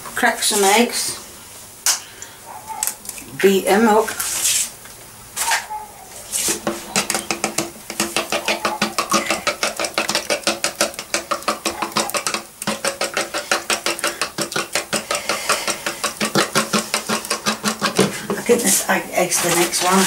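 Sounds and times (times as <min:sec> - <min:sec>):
fork beating eggs in bowl: 0:06.3 - 0:20.0.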